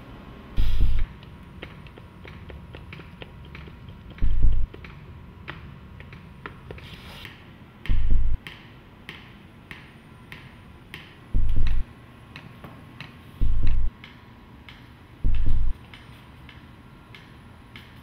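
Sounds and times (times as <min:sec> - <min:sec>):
clock-like ticking: 0:04.2 - 0:04.7.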